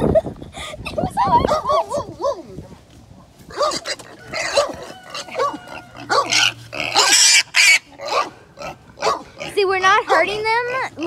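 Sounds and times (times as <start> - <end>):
pig squealing: 3.5 - 11.0.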